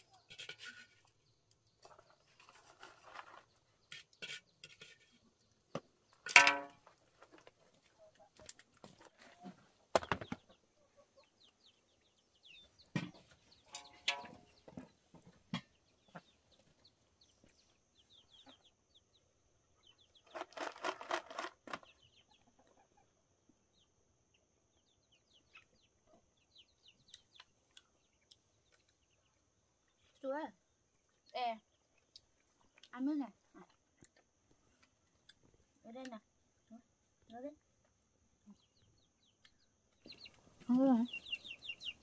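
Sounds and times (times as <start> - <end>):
small birds chirping: 0.0 - 42.0
chickens clucking: 6.1 - 18.9, 19.8 - 23.5, 38.4 - 42.0.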